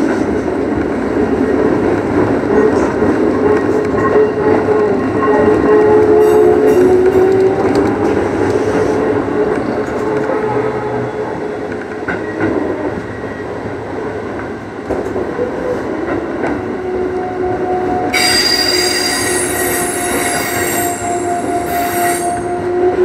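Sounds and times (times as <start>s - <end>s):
wheel squeal: 18.2s - 22.5s.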